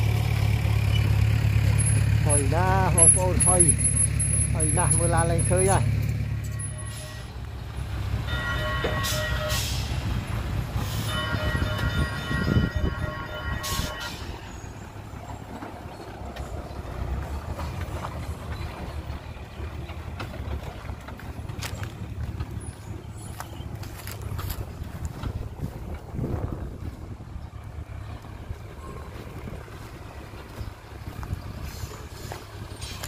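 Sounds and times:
truck engine pulling away: 0.0 - 33.0
truck horn blasts: 6.5 - 7.4, 8.1 - 10.2, 10.8 - 14.4.

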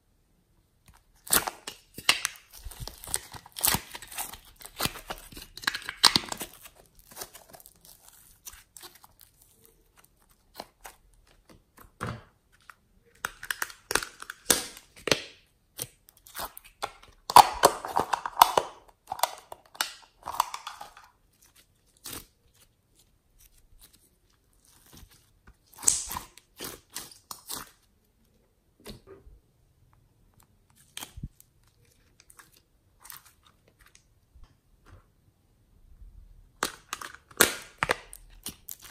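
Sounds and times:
plastic containers clicking and crinkling: 0.9 - 21.2, 36.6 - 38.9.

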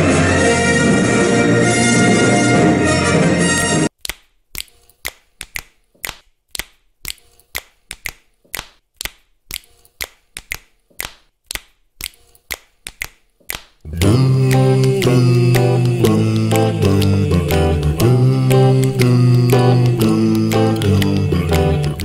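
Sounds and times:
music: 0.0 - 3.9, 13.9 - 22.0
orchestral music: 0.0 - 3.9
sharp even clicks: 4.0 - 22.0.

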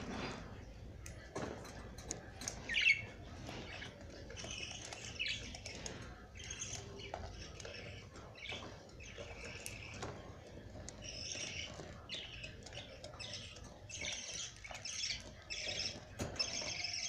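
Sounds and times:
budgerigars chirping and squawking: 1.4 - 17.0.

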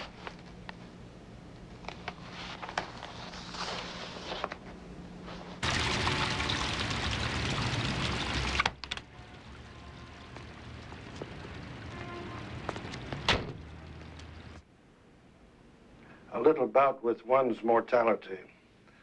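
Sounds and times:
fountain water splashing: 5.6 - 14.6
car low rumble: 6.6 - 14.6
car door shutting: 13.2 - 13.6.

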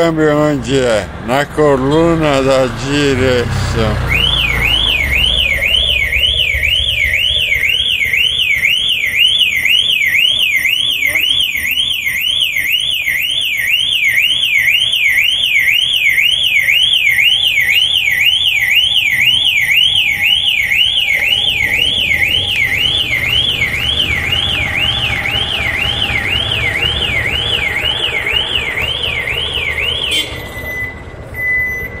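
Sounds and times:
electronic alarm siren wailing: 1.8 - 32.0
short steady beep: 27.6 - 32.0.

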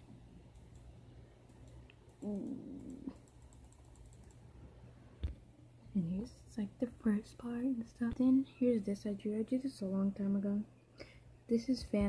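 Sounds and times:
person humming: 2.2 - 3.2.

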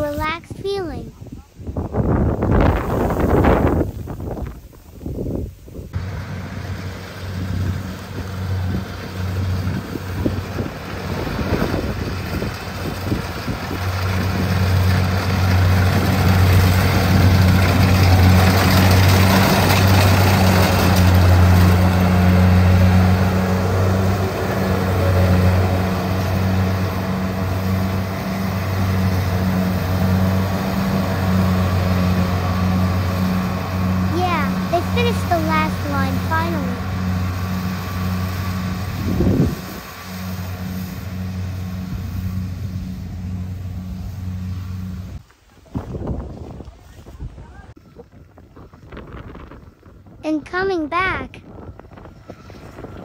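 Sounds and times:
combine harvester engine hum: 2.7 - 45.3
rushing mechanical noise: 5.9 - 45.2.

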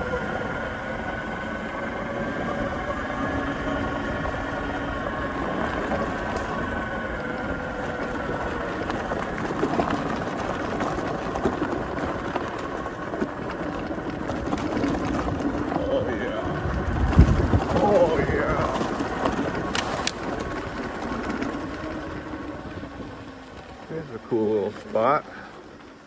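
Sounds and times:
electric motor whine: 0.0 - 25.9
tyres on bumpy dirt: 0.0 - 26.0.

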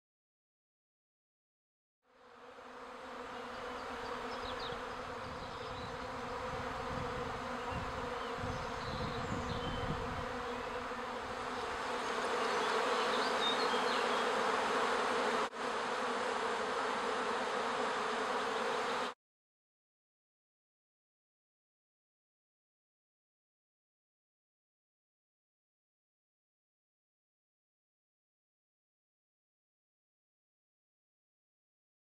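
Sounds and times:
bees buzzing: 2.1 - 19.2.

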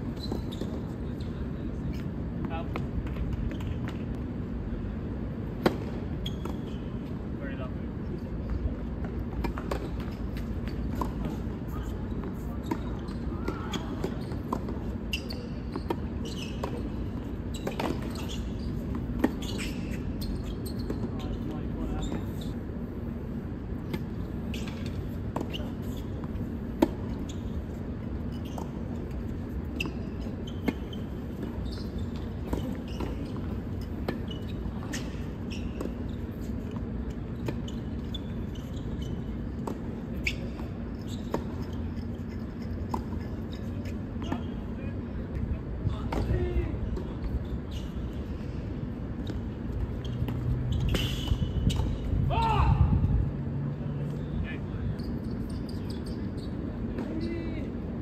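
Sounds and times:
short high squeaks: 15.1 - 22.6, 29.7 - 36.7, 37.4 - 44.7, 50.0 - 52.0, 55.0 - 56.6.

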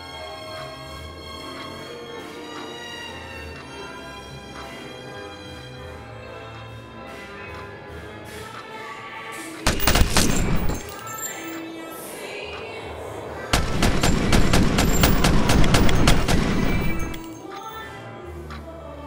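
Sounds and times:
rapid pistol shots: 9.7 - 11.4, 13.5 - 17.4
film score music: 9.7 - 17.8.

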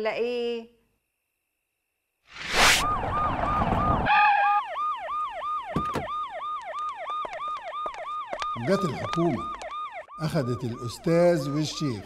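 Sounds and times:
loud rushing whoosh: 2.3 - 4.1
police siren yelping: 2.6 - 12.0.

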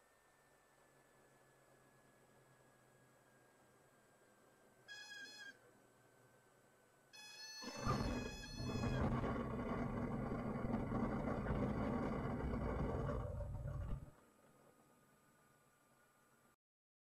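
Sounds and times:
tyres squealing on runway: 7.2 - 12.5
airplane engine idling: 7.7 - 14.1
wheels rumbling on pavement: 7.7 - 14.7.

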